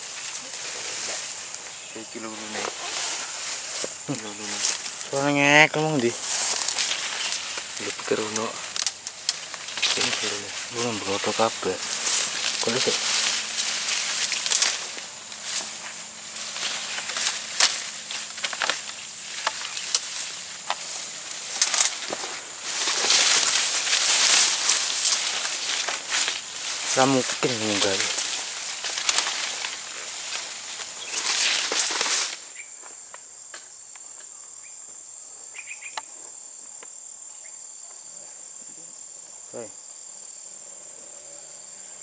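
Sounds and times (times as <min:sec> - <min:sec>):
leaves and stems rustling: 0:00.0 - 0:33.0
insects chirring: 0:00.0 - 0:42.0
sharp snaps of stems: 0:06.2 - 0:32.5
faint bird chirps: 0:35.5 - 0:36.1.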